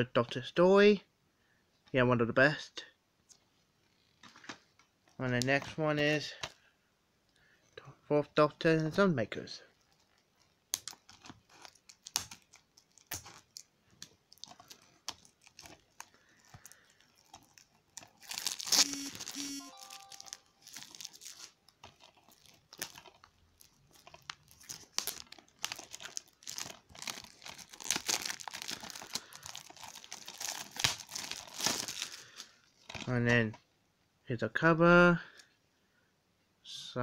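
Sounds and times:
plastic wrap crinkling: 9.6 - 33.6
plastic wrap tearing: 9.7 - 33.2.

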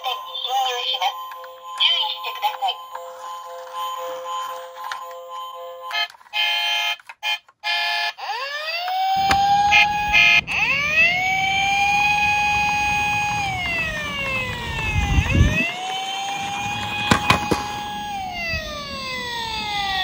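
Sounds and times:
toy electronic siren wailing: 0.0 - 20.0
plastic wheels rumbling on wood: 11.7 - 19.0.

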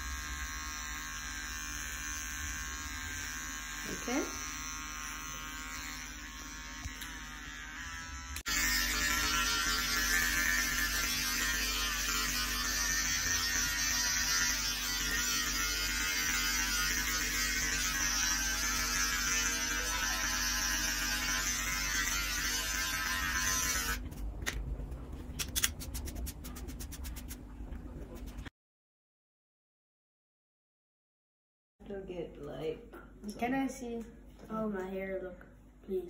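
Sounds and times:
electric hair clippers buzzing: 0.0 - 24.0.

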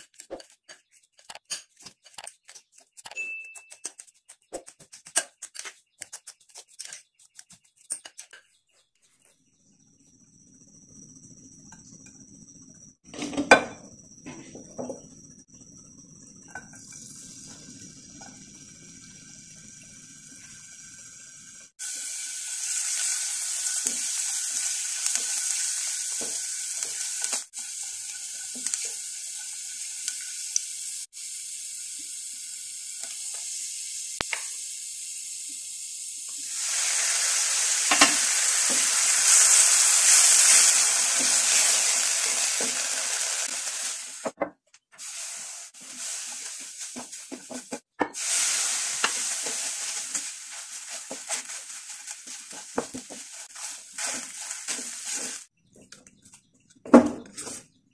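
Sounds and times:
garlic sizzling in a frying pan: 15.7 - 44.4, 45.0 - 55.5
spatula scraping a pan: 45.0 - 55.5.

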